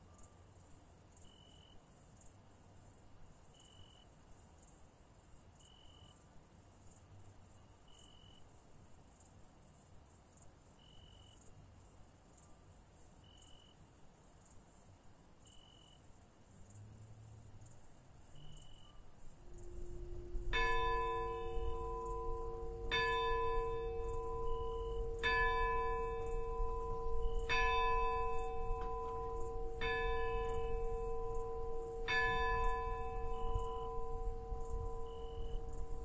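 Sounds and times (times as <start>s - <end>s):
faint cricket chirps: 0.0s - 36.0s
church bell tolling: 19.4s - 36.0s.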